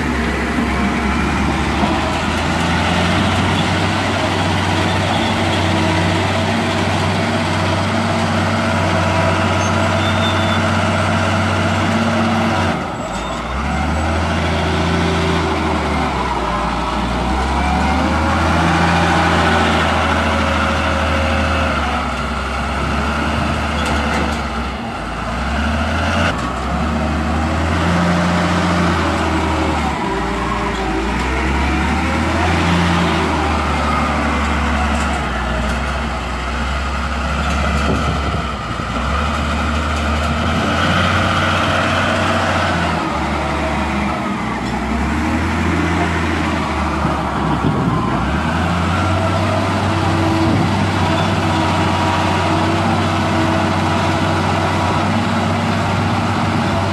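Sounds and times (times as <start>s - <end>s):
wheel loader diesel engine revving: 0.0s - 56.9s.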